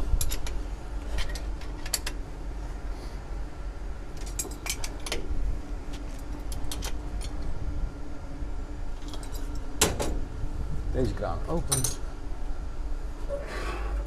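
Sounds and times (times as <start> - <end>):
steady low hum: 0.0 - 14.0
spanner clinking on metal fittings: 11.6 - 12.0.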